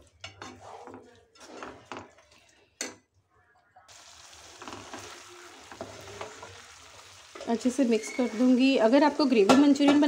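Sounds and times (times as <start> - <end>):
wooden spatula scraping pan: 0.3 - 2.2
food sizzling in a pan: 3.9 - 10.0.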